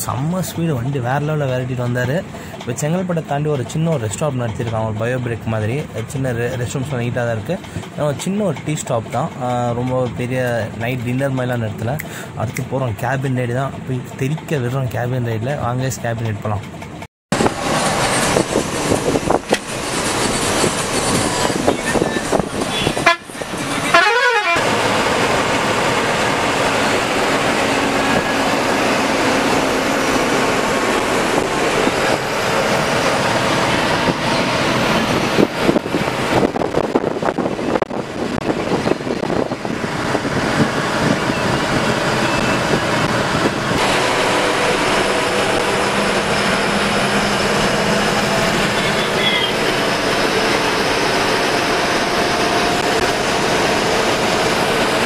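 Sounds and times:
bus diesel engine rumble: 0.0s - 55.0s.

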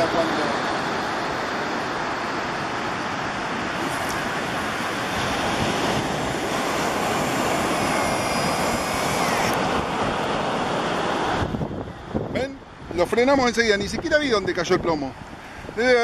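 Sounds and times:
surf: 0.0s - 16.0s
wind noise on microphone: 2.7s - 16.0s
fishing reel spool whirring: 3.5s - 11.3s.

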